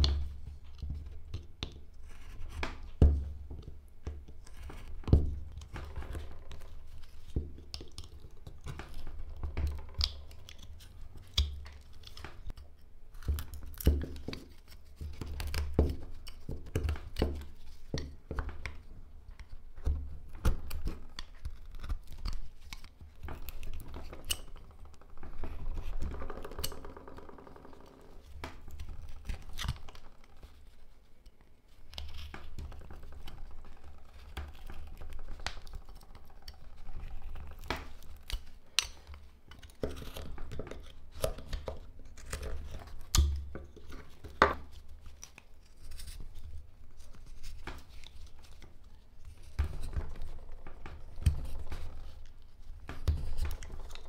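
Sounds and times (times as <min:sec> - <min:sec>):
knife cutting and scraping wood: 0:19.8 - 0:30.7, 0:31.8 - 0:54.0.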